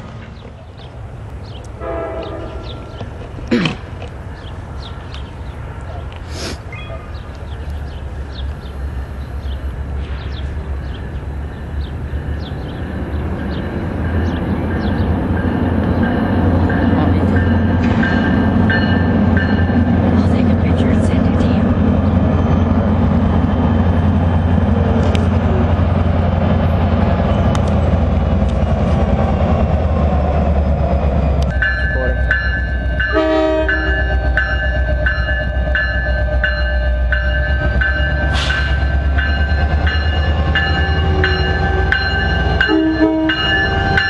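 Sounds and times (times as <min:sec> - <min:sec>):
diesel locomotive engine droning: 0:00.0 - 0:44.0
train horn blast: 0:01.8 - 0:02.9, 0:33.1 - 0:34.4, 0:42.7 - 0:44.0
locomotive bell ringing: 0:10.9 - 0:21.6, 0:31.5 - 0:44.0.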